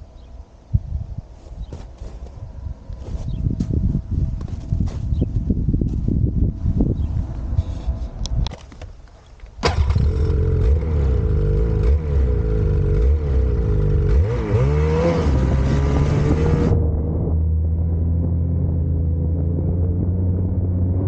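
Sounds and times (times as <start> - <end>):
snowmobile engine idling and revving: 9.6 - 21.0.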